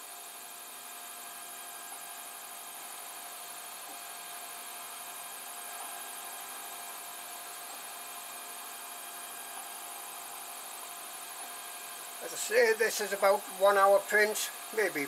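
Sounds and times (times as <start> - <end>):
printer fans and motors whirring: 0.0 - 15.0
even hiss: 12.2 - 15.0.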